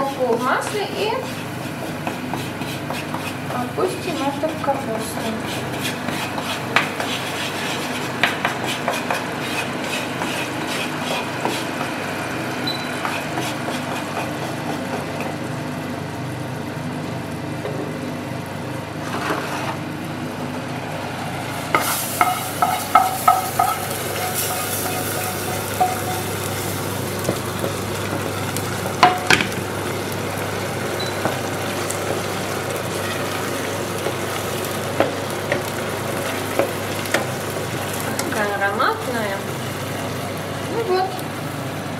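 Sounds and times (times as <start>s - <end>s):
wooden spatula scraping pan: 0.0s - 11.8s, 12.9s - 15.0s, 19.0s - 19.8s
flour sizzling in oil: 0.0s - 15.3s, 19.0s - 19.8s, 21.2s - 41.9s.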